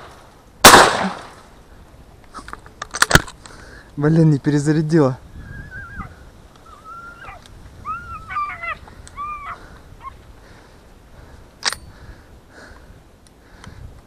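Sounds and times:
dog whining: 0:05.5 - 0:10.1.

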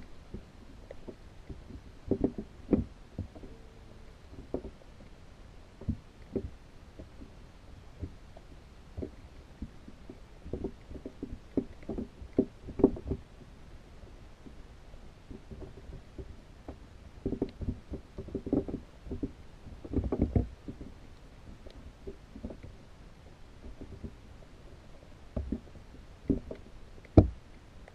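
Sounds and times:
muffled underwater knocks and taps: 0:00.3 - 0:04.8, 0:05.8 - 0:07.4, 0:08.0 - 0:13.3, 0:15.3 - 0:22.8, 0:23.6 - 0:24.2, 0:25.3 - 0:27.9.

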